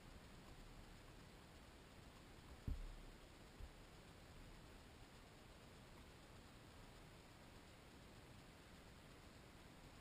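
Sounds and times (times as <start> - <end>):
faint steady hiss: 0.0 - 10.0
soft low thump: 2.6 - 3.8.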